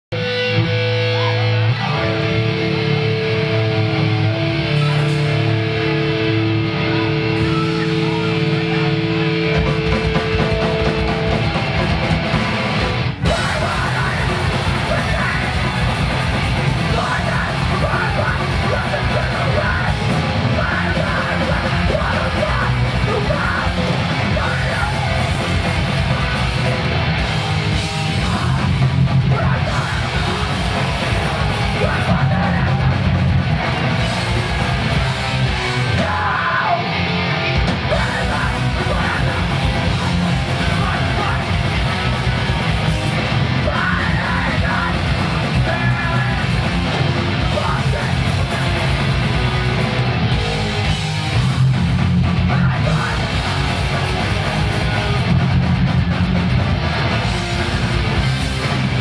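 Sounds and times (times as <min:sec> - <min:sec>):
distorted electric guitar chords: 0:00.0 - 0:59.0
punk band playing live: 0:00.1 - 0:59.0
person yelling vocals: 0:05.8 - 0:09.4, 0:13.3 - 0:15.9, 0:16.9 - 0:25.2, 0:28.1 - 0:30.5, 0:31.3 - 0:33.0, 0:35.9 - 0:36.9, 0:37.8 - 0:41.6, 0:43.6 - 0:46.5.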